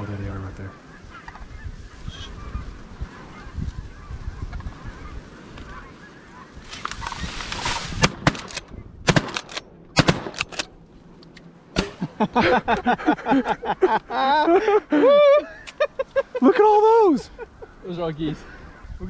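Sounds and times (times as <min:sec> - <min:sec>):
flock of birds calling: 0:00.0 - 0:08.1, 0:12.3 - 0:19.0
shotgun blasts: 0:07.9 - 0:10.7.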